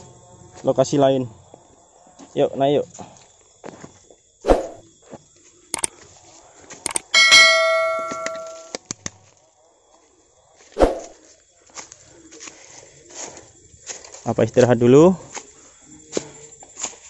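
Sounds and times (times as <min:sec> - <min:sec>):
sharp clicks: 0:06.9 - 0:08.6
bell ding: 0:06.9 - 0:08.8.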